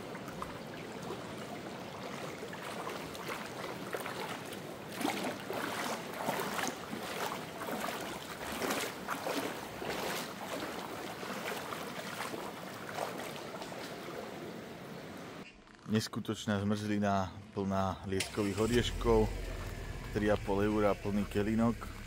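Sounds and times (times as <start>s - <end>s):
river water rushing: 0.0s - 15.4s.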